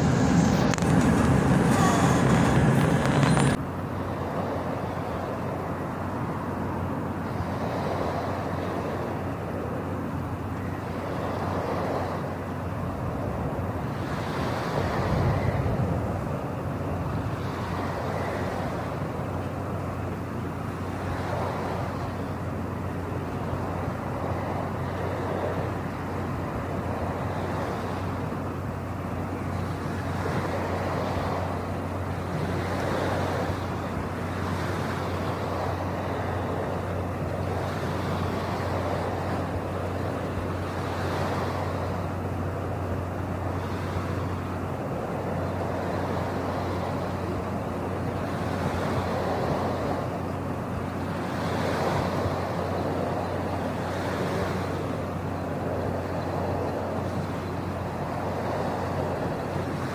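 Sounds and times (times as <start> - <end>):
rushing noise: 0.0 - 3.6
low engine hum: 0.0 - 59.9.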